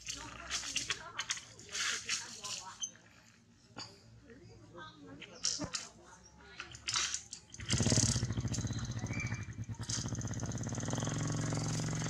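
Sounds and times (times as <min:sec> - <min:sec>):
small engine running: 0:07.5 - 0:12.0.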